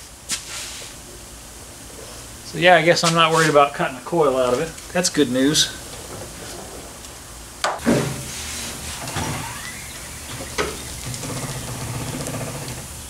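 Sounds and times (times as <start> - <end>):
low steady hum: 3.6 - 13.0.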